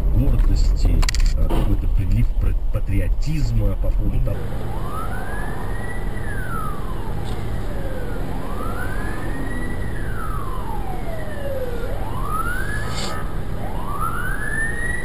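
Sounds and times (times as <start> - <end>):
low rumble of traffic: 0.0 - 15.0
emergency siren wailing: 4.3 - 15.0.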